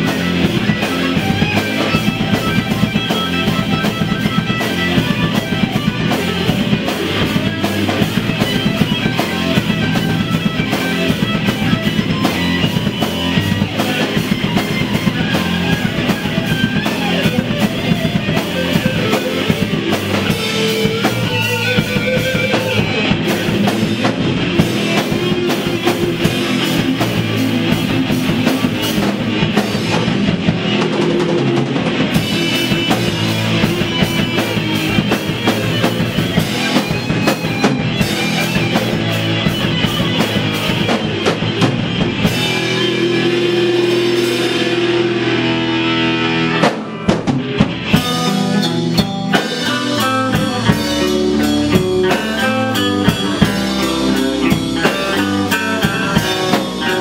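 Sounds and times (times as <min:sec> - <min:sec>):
bass guitar: 0:00.0 - 0:57.0
drum kit driving beat: 0:00.0 - 0:57.0
electric guitars: 0:00.0 - 0:57.0.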